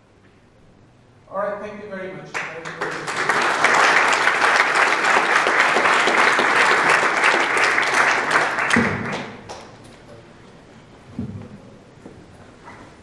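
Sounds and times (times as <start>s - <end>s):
audience applauding: 2.3s - 9.8s.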